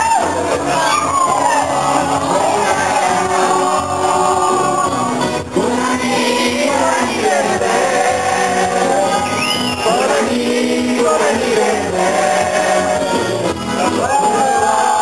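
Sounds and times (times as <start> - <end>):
high whoop: 0.0 - 1.8
band music with group singing: 0.0 - 15.0.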